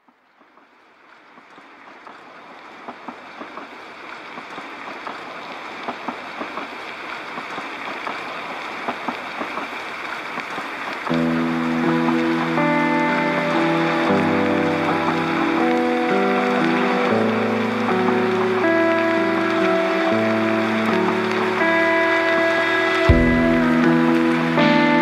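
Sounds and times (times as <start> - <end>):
music with held chords: 11.1 - 25.0.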